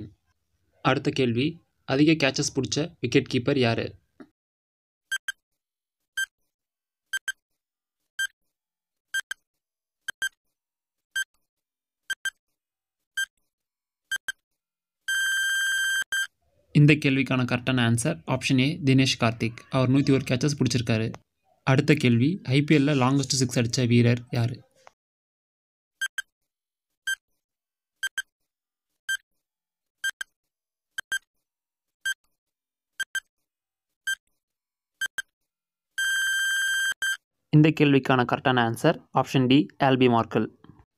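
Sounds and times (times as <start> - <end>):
short electronic beeps: 36.0 - 37.2.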